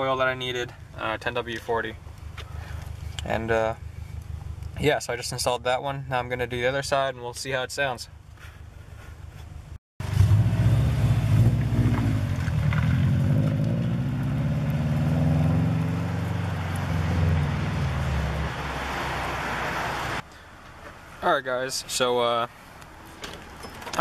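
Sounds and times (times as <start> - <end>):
car engine rumbling: 0.2 - 21.2.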